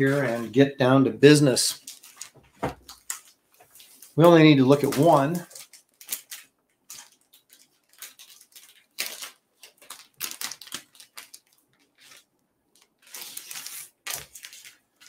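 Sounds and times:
plastic wrapping crinkling and tearing: 0:01.3 - 0:15.0.

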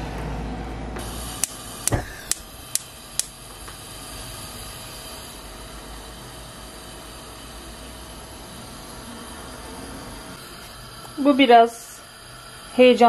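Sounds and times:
gas burner hissing: 0:00.9 - 0:13.0
gas igniter clicking: 0:01.0 - 0:03.8.

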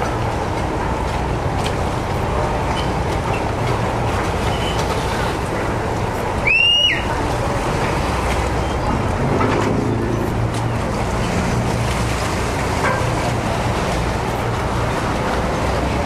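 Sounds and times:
boat engine rumble: 0:00.0 - 0:16.0
water: 0:00.0 - 0:16.0
short high whistle: 0:06.4 - 0:07.1.

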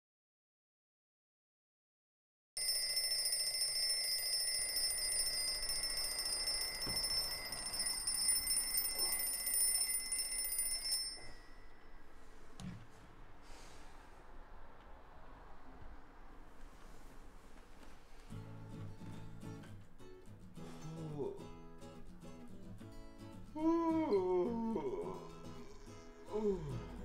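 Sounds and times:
alarm clock bells ringing: 0:02.6 - 0:12.1.

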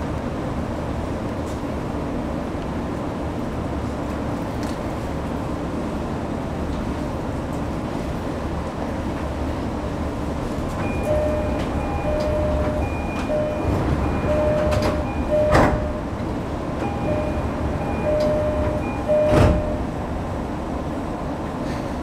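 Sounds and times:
stopped train hum: 0:00.0 - 0:22.0
sliding doors thudding shut: 0:10.6 - 0:20.2
train door chime beeping: 0:10.8 - 0:20.2.

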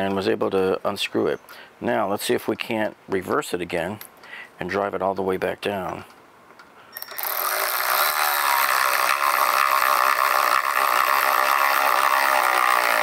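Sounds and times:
cordless ratchet whirring: 0:07.0 - 0:13.0.

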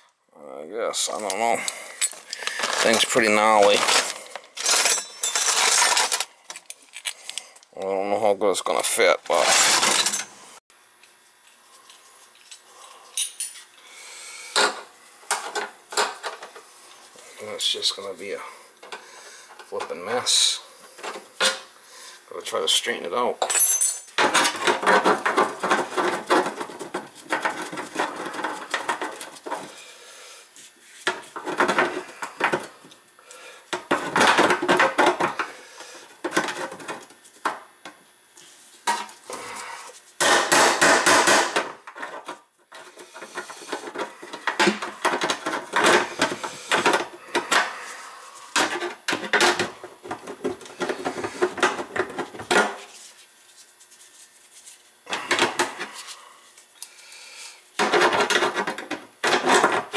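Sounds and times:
pliers clanking and scraping metal: 0:04.6 - 0:07.2.

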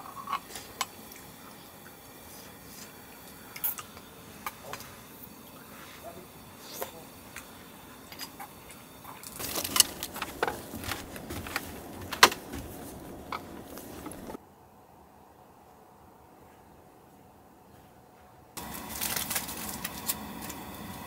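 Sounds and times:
small hard objects clattering: 0:09.1 - 0:14.4, 0:18.6 - 0:20.7.

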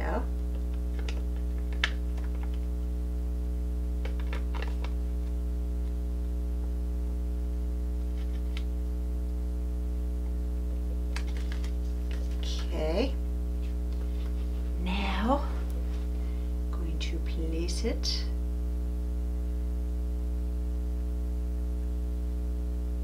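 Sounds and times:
low electrical hum: 0:00.0 - 0:23.0
plastic film crackling clicks: 0:00.5 - 0:02.7.

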